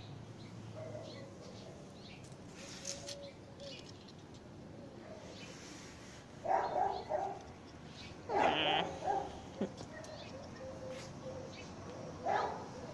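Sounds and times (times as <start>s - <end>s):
low background noise: 0.0s - 12.9s
animal calls: 8.3s - 11.5s.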